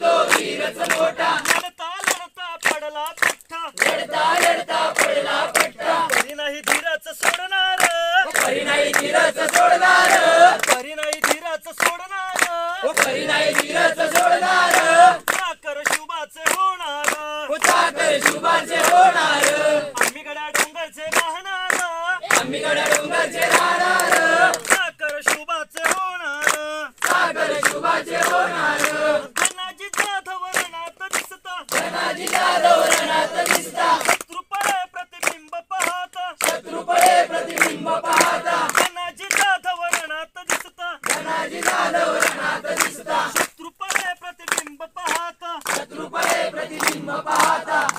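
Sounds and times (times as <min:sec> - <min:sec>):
group singing: 0:00.0 - 0:01.6, 0:03.7 - 0:11.6, 0:12.2 - 0:15.5, 0:17.1 - 0:24.9, 0:26.6 - 0:29.6, 0:31.6 - 0:34.2, 0:36.4 - 0:38.9, 0:41.0 - 0:43.5, 0:45.7 - 0:47.9
rhythmic hand claps: 0:00.0 - 0:47.9.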